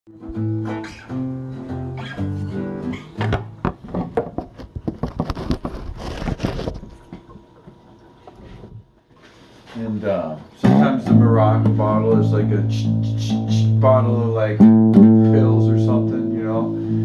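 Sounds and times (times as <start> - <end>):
acoustic guitar picked notes: 0.1 - 3.8, 10.6 - 17.0.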